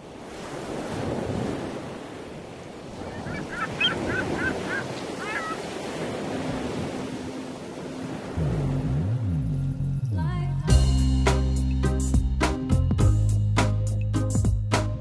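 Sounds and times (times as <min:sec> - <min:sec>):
waves washing on shore: 0:00.0 - 0:09.3.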